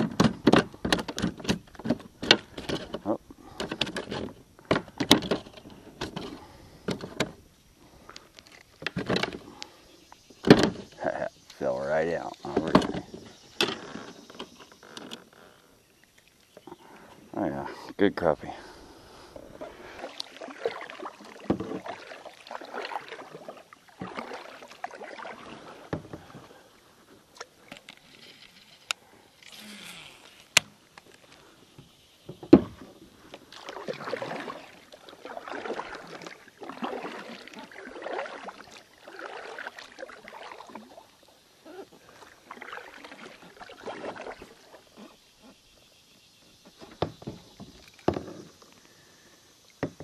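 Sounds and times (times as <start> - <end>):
paddle strokes swishing through water: 18.5 - 50.0.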